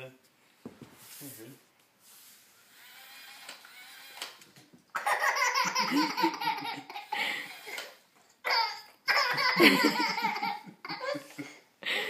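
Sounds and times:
baby laughing: 0:04.9 - 0:07.8, 0:08.4 - 0:11.4
man laughing: 0:09.2 - 0:12.0.

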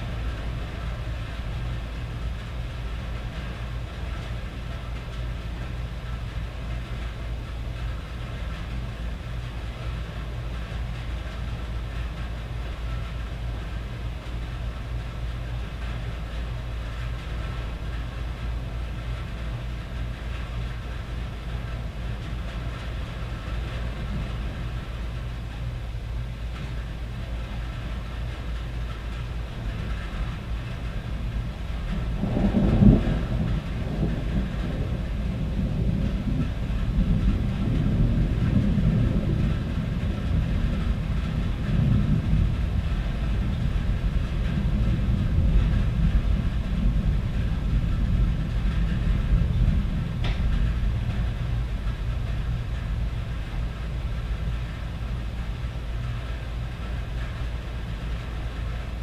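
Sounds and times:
rain on a tin roof: 0:00.0 - 0:59.0
low rumble: 0:27.4 - 0:59.0
thunder rolling: 0:29.5 - 0:59.0.

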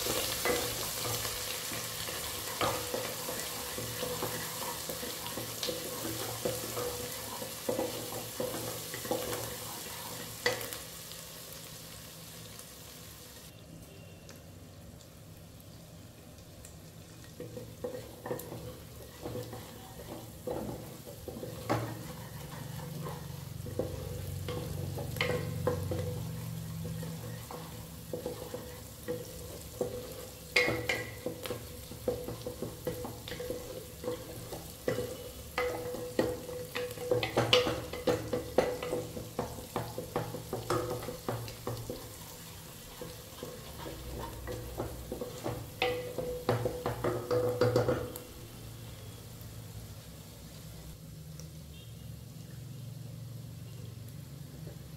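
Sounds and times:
food sizzling in oil: 0:00.0 - 0:13.6, 0:14.8 - 0:54.9
spoon knocking against a pan: 0:17.4 - 0:42.2, 0:42.9 - 0:48.2.

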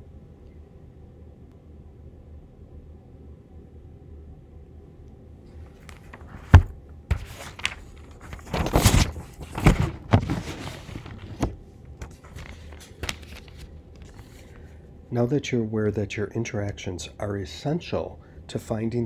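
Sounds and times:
faint steady hum: 0:00.0 - 0:19.0
rustling: 0:05.7 - 0:14.7.

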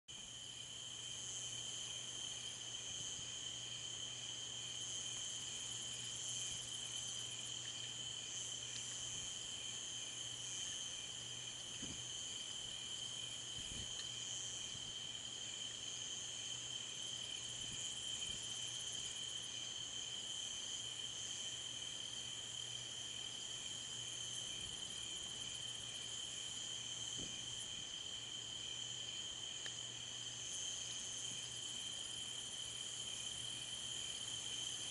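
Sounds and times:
crickets trilling: 0:00.1 - 0:34.9
insect pulsing chirp: 0:00.1 - 0:34.9.

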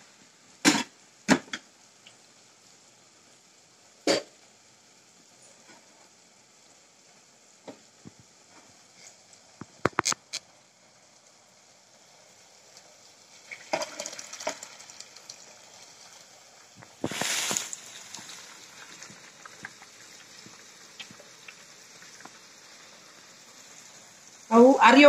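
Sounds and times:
short hissing rush: 0:16.9 - 0:18.5.

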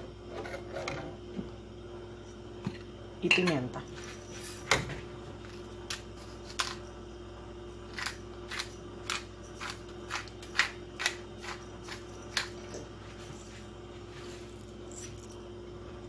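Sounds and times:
steady burner hum: 0:00.0 - 0:16.0.

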